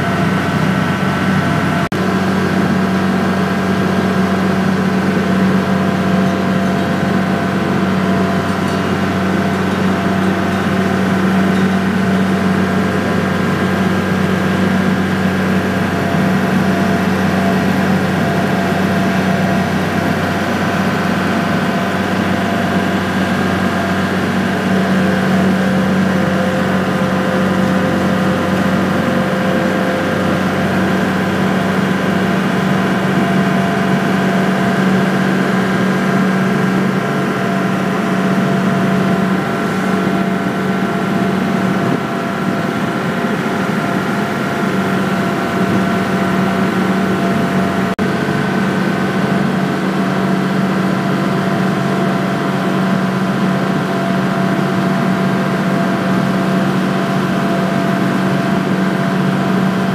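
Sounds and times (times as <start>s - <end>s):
ferry engine droning: 0.0s - 59.9s.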